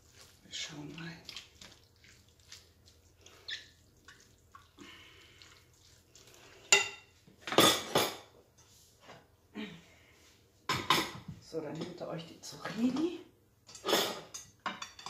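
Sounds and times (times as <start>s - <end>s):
clatter of dishes: 6.8s - 8.3s, 10.7s - 12.0s, 13.7s - 15.0s.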